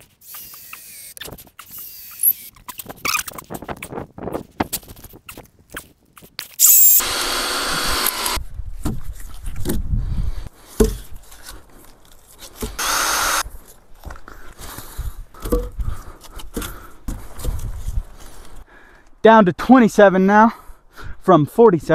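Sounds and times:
power drill running: 0.2 - 1.2, 6.6 - 8.4, 12.8 - 13.4.

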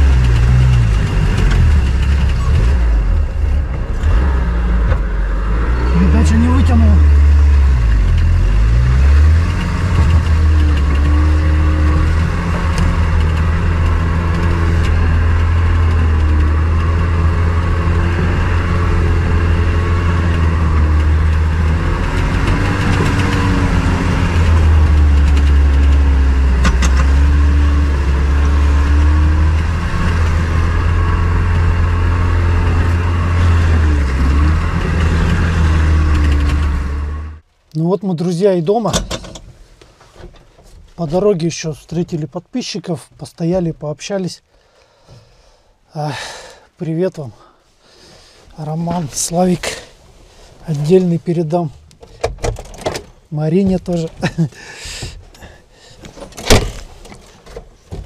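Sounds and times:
vehicle engine droning: 0.0 - 37.4.

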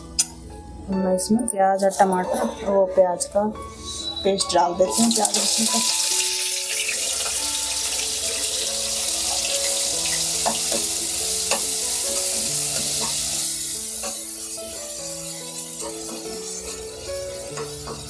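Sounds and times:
soft background music: 0.0 - 18.0
paste sizzling in hot oil: 4.9 - 18.0.

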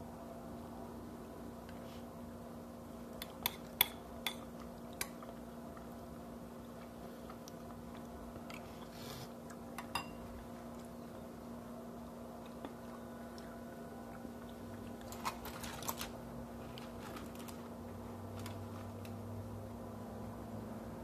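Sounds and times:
steady low hum: 0.0 - 21.0
spoon clinking against ceramic bowl: 9.8 - 10.2.

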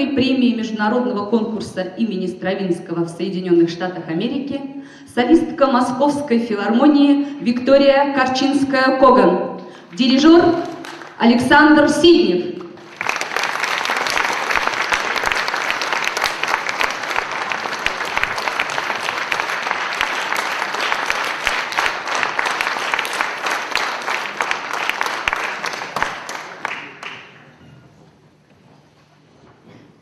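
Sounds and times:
audience applauding: 10.6 - 11.2, 12.8 - 27.5.

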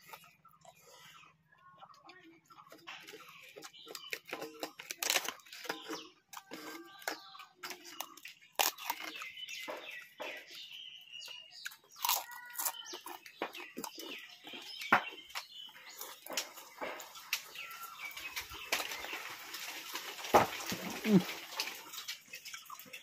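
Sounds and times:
person chewing: 0.0 - 19.0, 20.6 - 23.0
chickens clucking: 0.0 - 23.0
flatbread tearing: 4.2 - 5.8.

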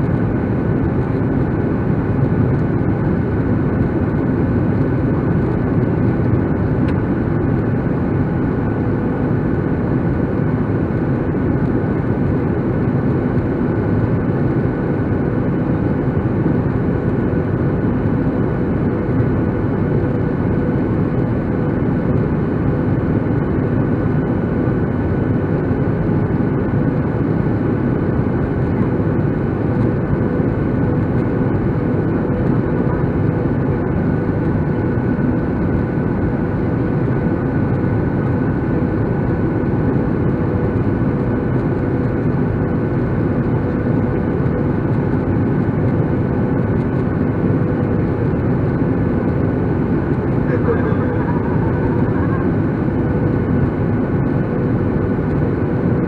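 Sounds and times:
faint steady hum: 0.0 - 56.0
jet engine roar in cabin: 0.0 - 56.0.

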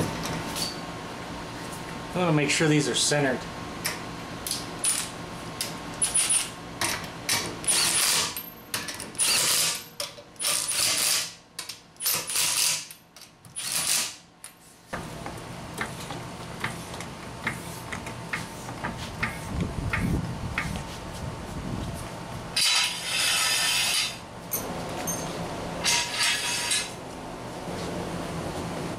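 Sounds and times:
impact wrench bursts: 7.6 - 8.4, 9.2 - 11.4, 12.0 - 13.0.

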